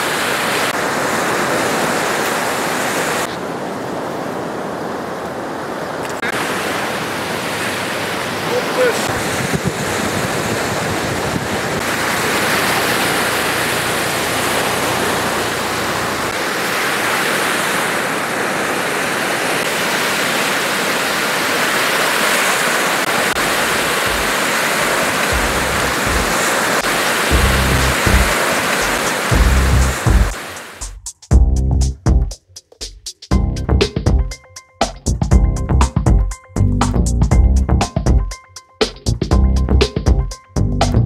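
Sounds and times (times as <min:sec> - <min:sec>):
surf breaking on beach: 0:00.0 - 0:30.9
low thumps: 0:25.3 - 0:26.4, 0:27.3 - 0:32.3, 0:33.3 - 0:34.4, 0:35.1 - 0:38.3.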